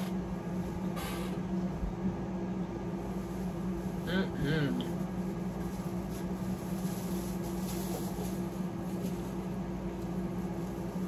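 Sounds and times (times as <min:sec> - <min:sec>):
room machinery humming: 0:00.0 - 0:11.0
plastic bag rustling: 0:02.9 - 0:11.0.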